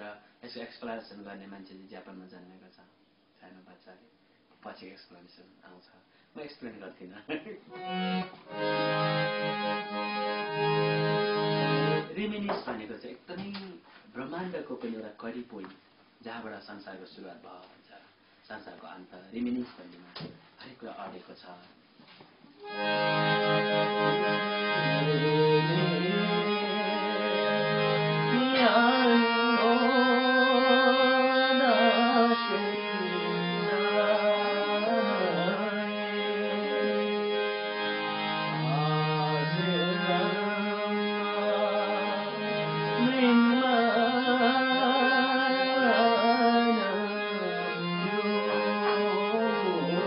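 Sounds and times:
harmonium chords and melody: 7.7s - 12.2s, 22.6s - 50.0s
person chanting: 23.5s - 37.5s, 38.5s - 50.0s.

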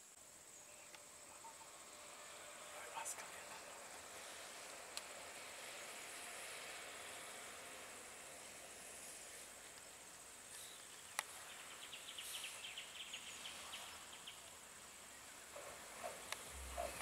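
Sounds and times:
outdoor background hiss: 0.0s - 17.0s
high chirping ticks: 9.7s - 11.4s, 15.6s - 17.0s.

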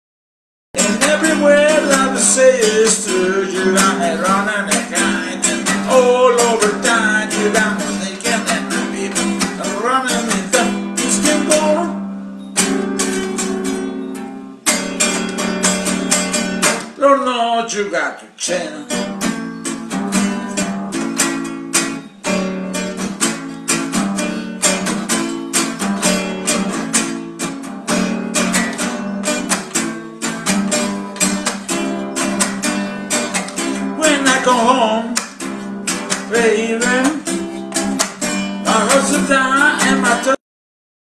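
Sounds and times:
person singing: 0.8s - 12.0s, 33.8s - 35.3s, 36.1s - 37.4s, 38.6s - 40.4s
acoustic guitar strumming: 0.8s - 40.4s.

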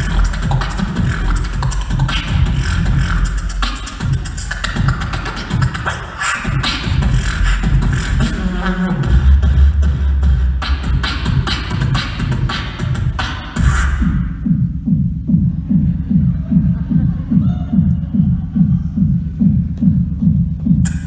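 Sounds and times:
beatboxing kick snare and hi-hat: 0.0s - 21.0s
deep beatbox bass: 0.0s - 21.0s.

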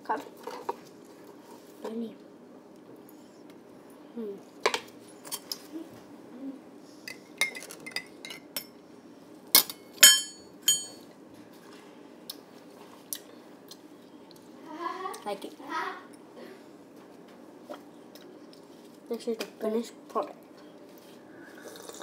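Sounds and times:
spoon clinking against glass: 10.0s - 11.0s.

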